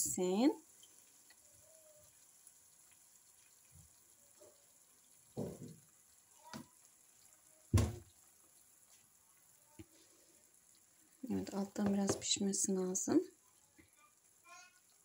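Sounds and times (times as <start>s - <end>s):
egg sizzling in a pan: 0.0s - 15.0s
kitchen knocks and thumps: 5.3s - 5.8s, 7.7s - 8.1s, 11.7s - 12.6s.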